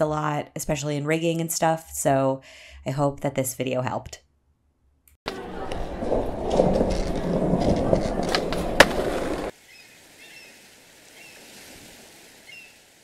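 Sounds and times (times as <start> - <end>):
skateboard clacks: 5.3 - 9.5
skateboard wheels rolling: 5.3 - 9.6.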